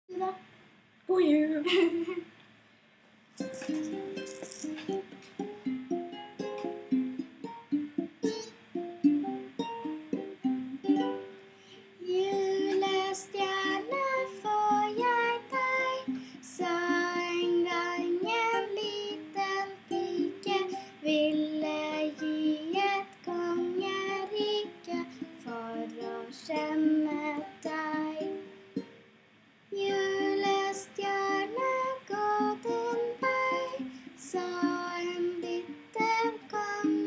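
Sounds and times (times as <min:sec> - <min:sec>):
girl singing: 0:00.1 - 0:00.5, 0:12.0 - 0:28.5, 0:29.7 - 0:37.0
ukulele strumming: 0:03.4 - 0:29.0, 0:29.8 - 0:37.0.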